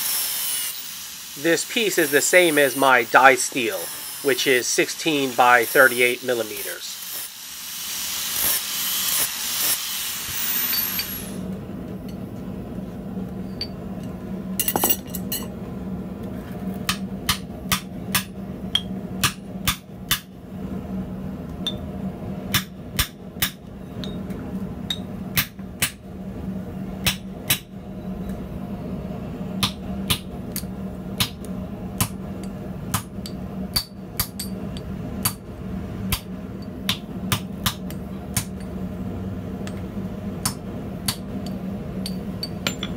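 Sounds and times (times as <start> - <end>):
grinder grinding steel: 0.0 - 11.4
hammer striking hot steel: 16.8 - 20.3, 22.5 - 24.2, 24.9 - 26.0, 27.0 - 27.7, 29.6 - 35.4, 36.1 - 38.7, 40.4 - 42.9.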